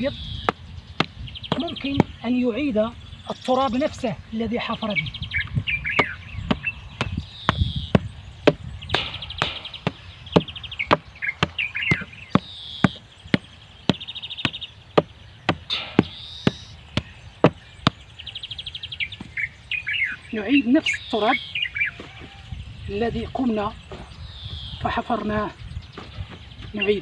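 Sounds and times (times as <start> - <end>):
birds chirping: 0.0 - 27.0
hammer knocking on stones: 6.0 - 18.0.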